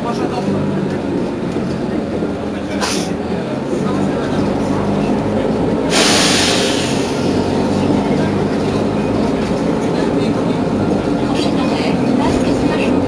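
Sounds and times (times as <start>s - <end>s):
bus engine idling: 0.0s - 13.0s
compressed air hiss: 5.9s - 7.6s.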